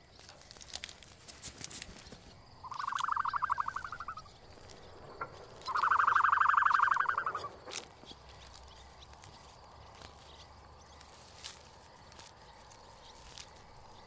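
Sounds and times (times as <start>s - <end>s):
pulsed animal trills: 2.6s - 7.9s.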